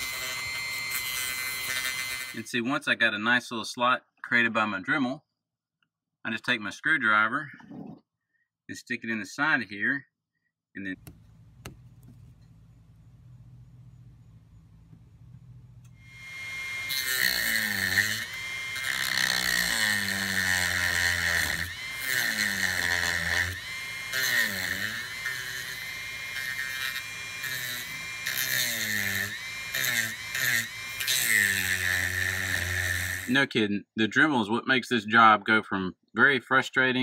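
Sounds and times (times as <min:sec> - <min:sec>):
rotary tool cutting plastic: 0:00.0 - 0:02.5, 0:15.8 - 0:33.3.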